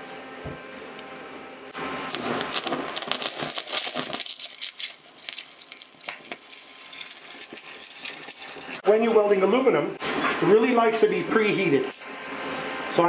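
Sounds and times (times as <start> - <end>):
welding arc crackling: 1.8 - 8.9.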